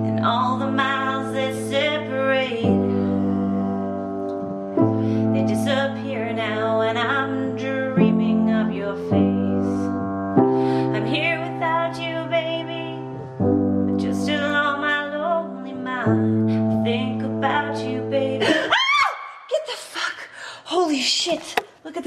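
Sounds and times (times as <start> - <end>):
woman singing slow song: 0.0 - 3.6, 5.2 - 10.1, 10.8 - 13.2, 13.9 - 19.1
piano chords: 0.0 - 18.7.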